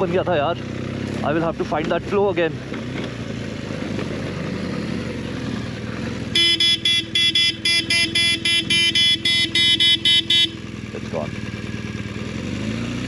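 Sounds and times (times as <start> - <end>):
motorcycle running: 0.0 - 13.0
vehicle horn short beeps: 6.3 - 10.7.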